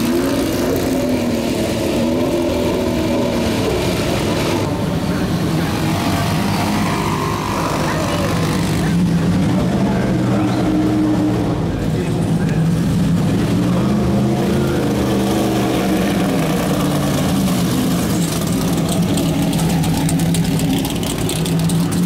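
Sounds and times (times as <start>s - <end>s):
race car engines burbling: 0.0s - 22.0s
car passing with exhaust crackle: 13.7s - 22.0s.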